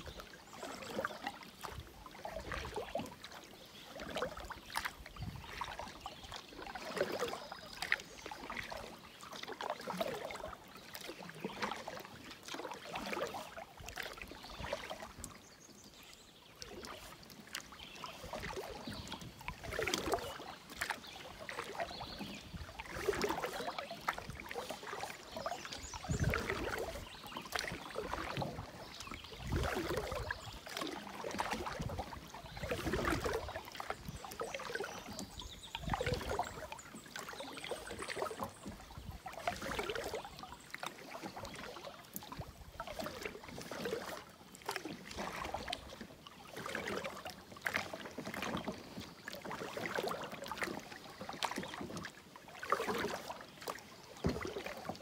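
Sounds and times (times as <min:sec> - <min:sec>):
canoe paddle swishing through water: 0:00.0 - 0:55.0
water dripping from paddle: 0:00.0 - 0:55.0.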